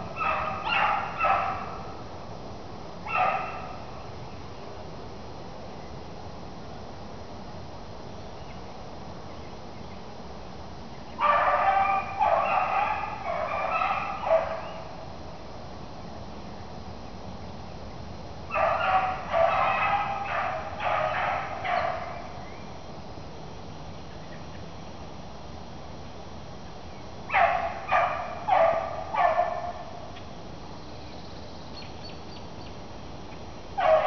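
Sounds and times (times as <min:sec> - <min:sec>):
beagle baying: 0:00.0 - 0:01.9, 0:03.1 - 0:03.9, 0:11.2 - 0:15.0, 0:18.5 - 0:22.4, 0:27.3 - 0:30.1, 0:33.8 - 0:34.0.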